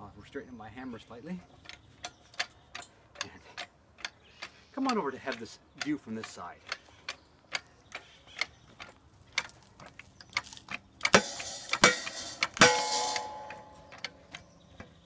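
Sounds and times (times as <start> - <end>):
hand pump clicking: 1.6 - 12.7.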